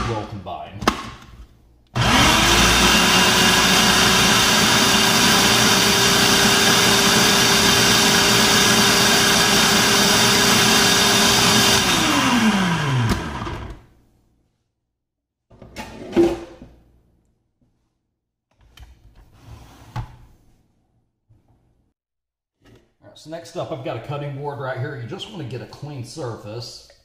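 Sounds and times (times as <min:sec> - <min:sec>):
food processor motor whining: 0:02.0 - 0:13.9.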